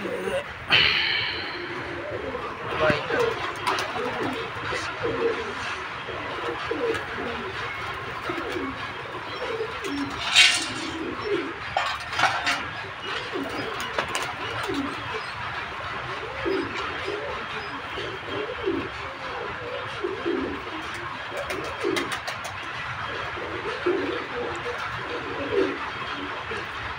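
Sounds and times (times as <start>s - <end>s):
pigeons cooing: 0.0s - 26.9s
loud burst of noise: 0.6s - 2.7s.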